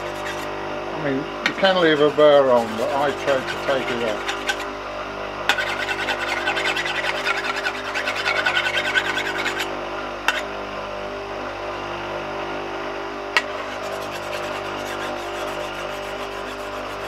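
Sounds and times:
chisel scratching on a hone: 0:00.0 - 0:00.5, 0:01.5 - 0:04.7, 0:05.5 - 0:09.7, 0:10.3 - 0:10.5, 0:13.4 - 0:17.0
bench grinder motor humming: 0:00.0 - 0:11.2, 0:12.2 - 0:17.0.

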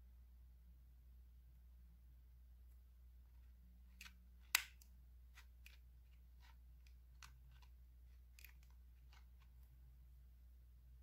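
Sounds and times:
sharp plastic click: 0:04.0 - 0:04.9
tool scraping plastic: 0:05.3 - 0:09.7.

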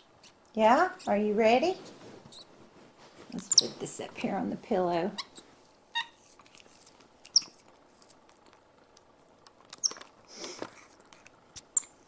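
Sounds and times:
monkey high squeaks: 0:03.4 - 0:03.8, 0:06.0 - 0:06.2, 0:07.3 - 0:07.6, 0:09.8 - 0:10.0, 0:11.8 - 0:12.0
toothbrush scratchy rustle: 0:06.1 - 0:08.5.

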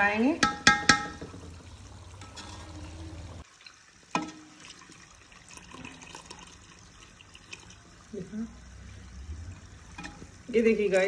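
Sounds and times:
metal ladle clinking on pot: 0:00.4 - 0:01.4, 0:04.2 - 0:04.5, 0:10.0 - 0:10.2
butter bubbling and crackling: 0:00.4 - 0:10.6.

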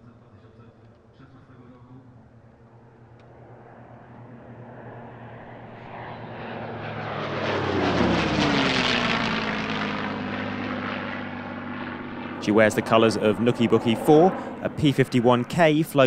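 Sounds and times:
propeller plane engine flypast: 0:00.0 - 0:16.0.

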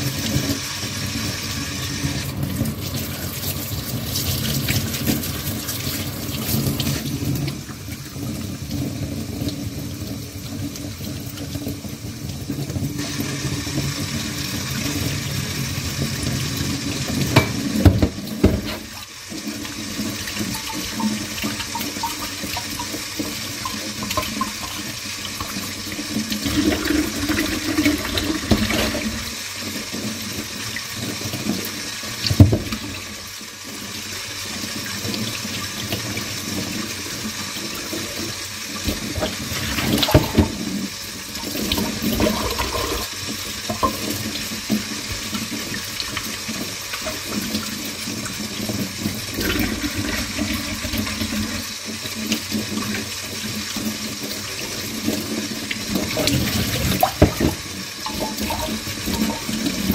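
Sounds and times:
tap running into sink: 0:17.1 - 0:29.3, 0:32.2 - 0:33.1, 0:38.8 - 0:53.0, 0:55.0 - 0:59.9.

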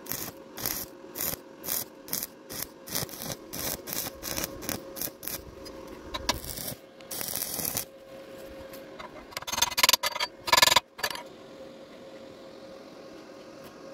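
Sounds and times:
welding arc crackling: 0:00.0 - 0:07.9.

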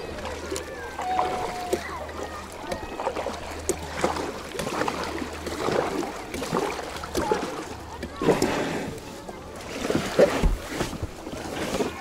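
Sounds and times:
faint distant voices: 0:00.0 - 0:12.0
water lapping around a kayak: 0:00.0 - 0:12.0.

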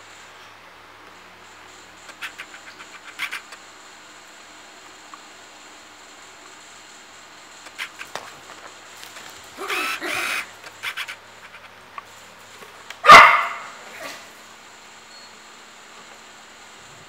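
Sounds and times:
dog barking: 0:09.6 - 0:11.2, 0:13.0 - 0:14.2.

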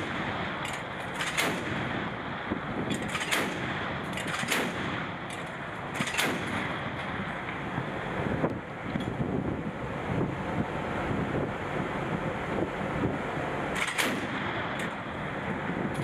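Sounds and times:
deck gun firing: 0:00.0 - 0:02.1, 0:02.9 - 0:06.8, 0:13.8 - 0:14.5
wind on microphone: 0:00.0 - 0:16.0.

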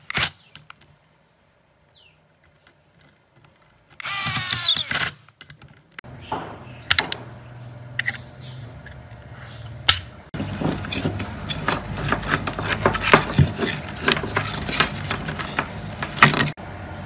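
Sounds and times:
metal parts clicking and rattling: 0:02.4 - 0:06.0, 0:09.8 - 0:16.6.

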